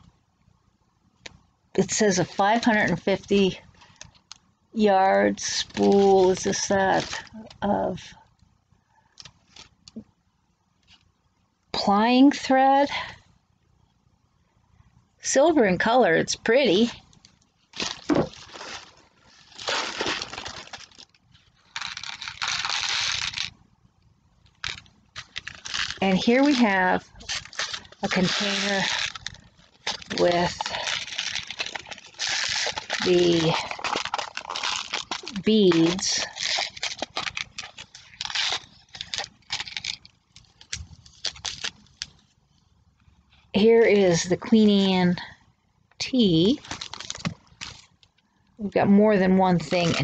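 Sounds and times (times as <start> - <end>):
plastic packaging rustling: 9.2 - 10.0, 17.1 - 23.6, 24.4 - 42.6, 46.6 - 48.2, 49.6 - 50.0.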